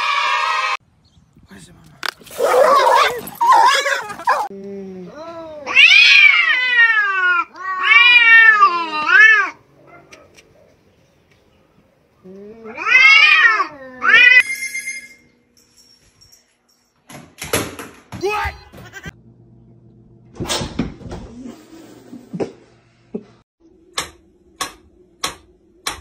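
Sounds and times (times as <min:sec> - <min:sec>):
cats yowling: 0:02.4 - 0:04.5, 0:05.2 - 0:09.6, 0:12.4 - 0:14.4.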